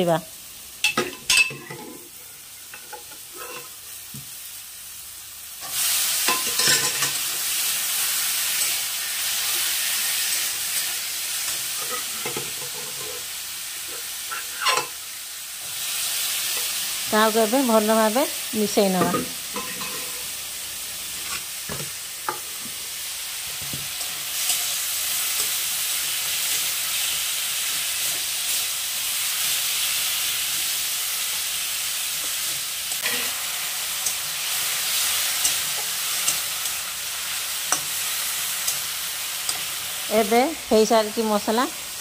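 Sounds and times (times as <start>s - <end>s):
food sizzling in a pan: 0.0s - 42.0s
spatula scraping and tapping pan: 11.5s - 13.2s, 13.9s - 15.0s, 21.2s - 22.8s.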